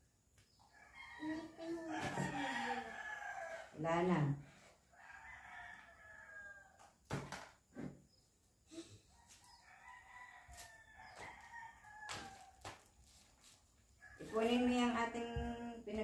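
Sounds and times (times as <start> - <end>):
rooster crowing: 0.7 - 3.8, 4.9 - 6.9, 9.2 - 12.8.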